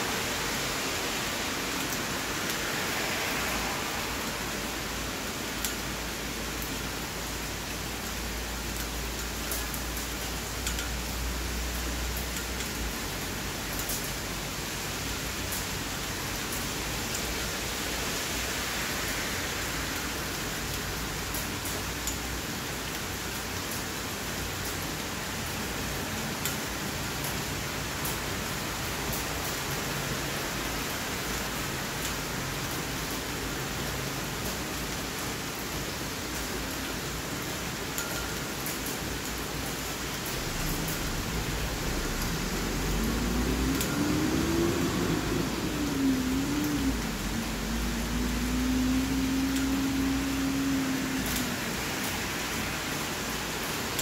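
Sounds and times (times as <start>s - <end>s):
steady rain hiss: 0.0s - 54.0s
raindrop ticks: 5.2s - 5.9s, 6.6s - 14.3s, 15.4s - 17.6s, 20.0s - 33.7s, 38.0s - 52.7s
vehicle low hum: 40.2s - 52.6s.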